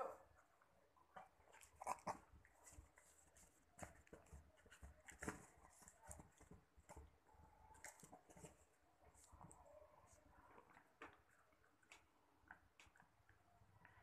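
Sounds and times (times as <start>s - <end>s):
dog sniffing and snuffling: 1.4s - 7.1s.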